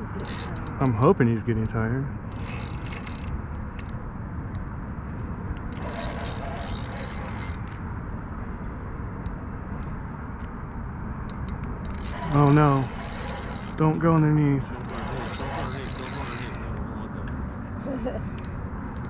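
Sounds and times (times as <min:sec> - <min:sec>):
fishing reel scraping and clicking: 0:00.0 - 0:04.7, 0:05.7 - 0:07.8, 0:11.3 - 0:16.7
outdoor background rush: 0:00.0 - 0:19.0.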